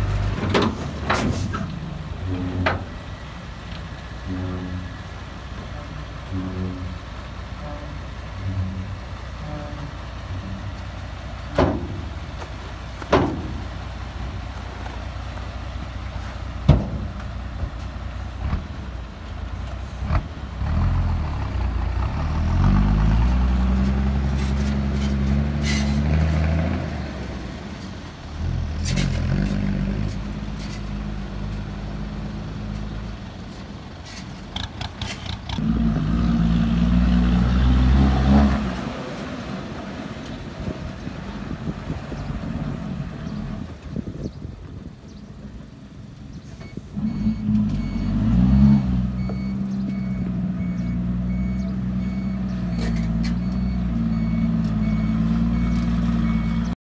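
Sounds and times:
diesel truck engine running: 0:00.0 - 0:56.8
tailgate banging: 0:11.5 - 0:12.2, 0:13.1 - 0:13.7.

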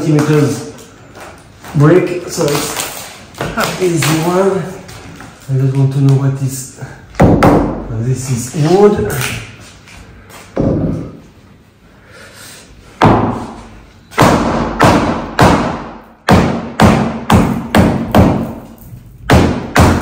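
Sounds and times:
hammer striking chisel: 0:13.0 - 0:20.0.

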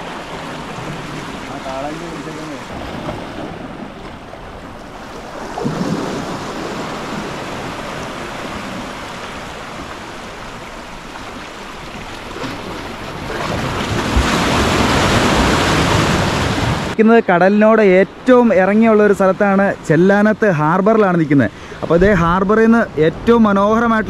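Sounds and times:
wind on microphone: 0:00.0 - 0:17.0, 0:21.8 - 0:24.0
sea surf: 0:00.0 - 0:24.0.

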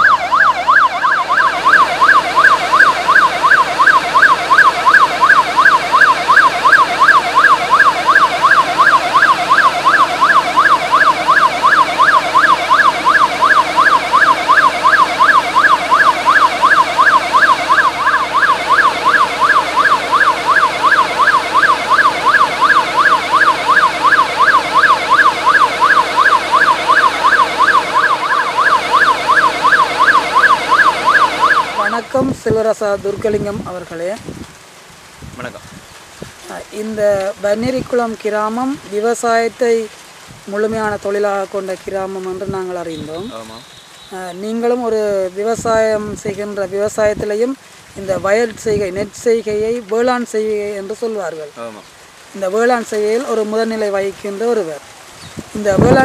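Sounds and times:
electronic siren warble: 0:00.0 - 0:32.3, 0:55.7 - 0:56.0.

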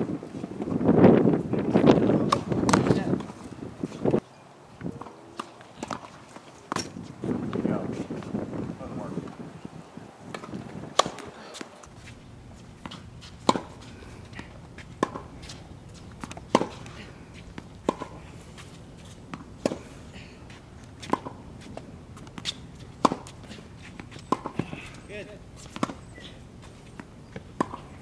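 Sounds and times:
tennis balls struck with rackets: 0:02.1 - 0:04.2, 0:05.0 - 0:07.6, 0:10.3 - 0:12.0, 0:12.8 - 0:28.0.

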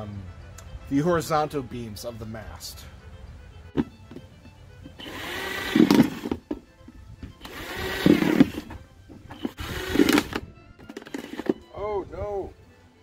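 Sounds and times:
cordless drill boring plastic: 0:05.0 - 0:06.4, 0:07.4 - 0:08.7, 0:09.4 - 0:10.4.

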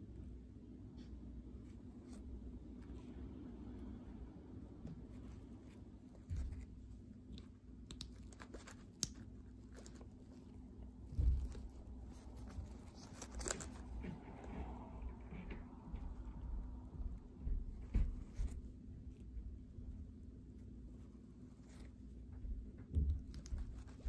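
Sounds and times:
fabric rustling and crinkling: 0:08.2 - 0:16.2
low bumps: 0:10.8 - 0:20.0.

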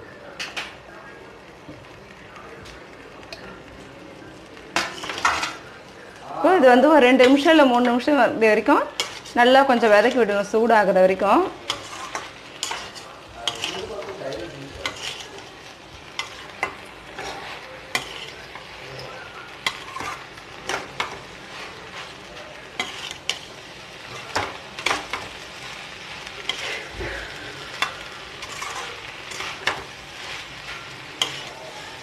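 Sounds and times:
food sizzling: 0:00.0 - 0:32.0
metal spoon scraping pan: 0:04.8 - 0:05.6, 0:08.9 - 0:10.3, 0:11.5 - 0:25.4, 0:26.3 - 0:32.0.

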